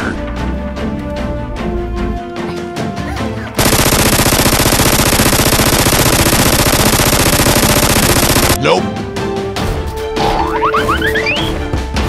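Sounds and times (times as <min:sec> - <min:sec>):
machine-gun burst: 0:03.6 - 0:08.6.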